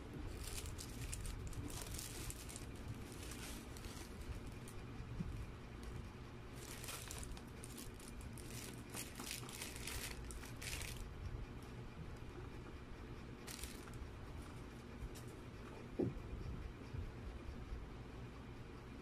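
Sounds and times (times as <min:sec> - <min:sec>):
plastic bag crinkling: 0:00.3 - 0:04.8, 0:06.6 - 0:11.0, 0:13.5 - 0:14.0.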